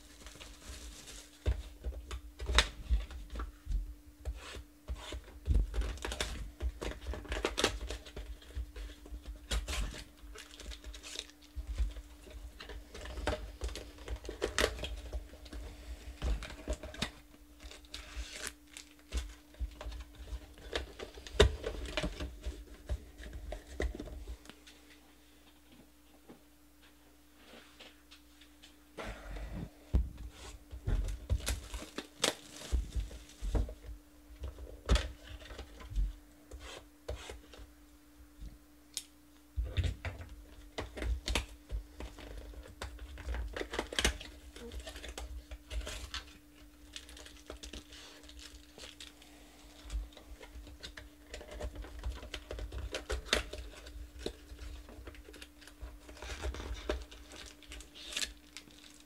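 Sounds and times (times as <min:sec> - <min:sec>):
cardboard and plastic tearing: 0:04.4 - 0:15.6, 0:16.2 - 0:24.2, 0:30.4 - 0:33.8, 0:39.7 - 0:49.2, 0:49.8 - 0:59.0.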